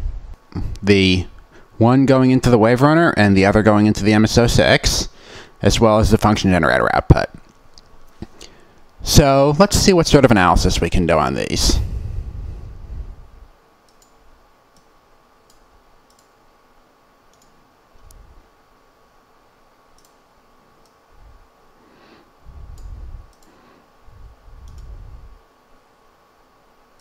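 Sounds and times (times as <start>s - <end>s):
faint steady hum: 0.0s - 27.0s
computer mouse clicking: 13.8s - 16.4s, 17.3s - 18.2s, 20.0s - 20.2s, 22.7s - 23.6s, 24.6s - 25.0s.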